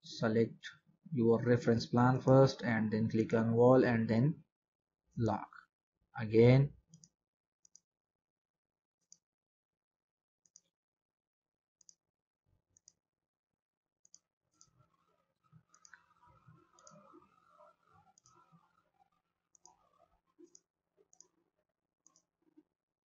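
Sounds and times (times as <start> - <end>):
computer mouse clicks: 10.4 - 10.7, 15.7 - 17.4, 18.0 - 18.6, 19.5 - 21.4, 22.0 - 22.6.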